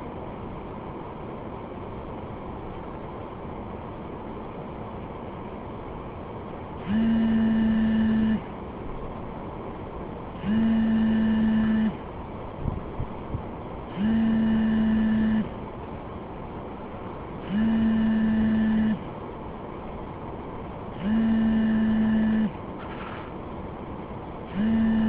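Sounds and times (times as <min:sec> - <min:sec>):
electronic ringing tone: 0:06.9 - 0:08.4, 0:10.5 - 0:12.0, 0:14.1 - 0:15.5, 0:17.6 - 0:19.0, 0:21.0 - 0:22.6, 0:24.6 - 0:25.0.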